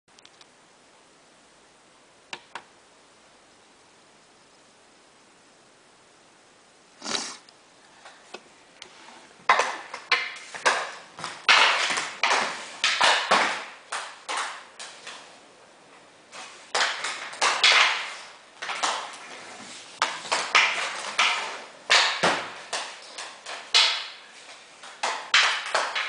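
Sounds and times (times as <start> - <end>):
hockey stick clacking ball on tiles: 9.4 - 15.3, 16.7 - 26.0.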